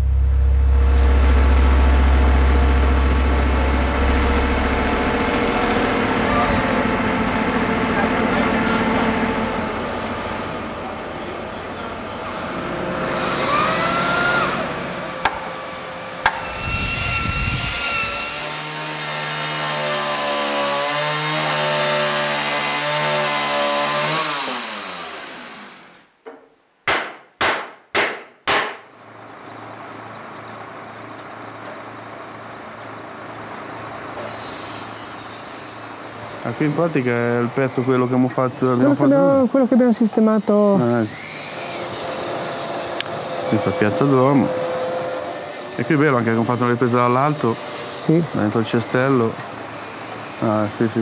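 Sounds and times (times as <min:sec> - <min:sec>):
steady low hum: 0:00.0 - 0:18.5
chainsaw cutting timber: 0:13.0 - 0:15.5, 0:18.2 - 0:26.0
sharp knocks: 0:15.2 - 0:15.5, 0:16.2 - 0:16.5, 0:26.2 - 0:28.9.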